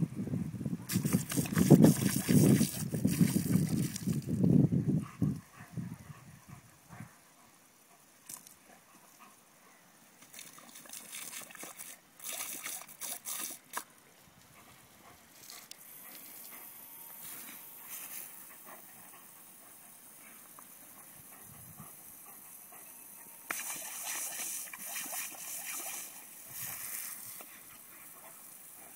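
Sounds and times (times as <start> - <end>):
sprinkler water jet hissing: 0.9 - 4.6, 10.0 - 28.9
water splashing: 10.2 - 13.8, 23.5 - 27.4.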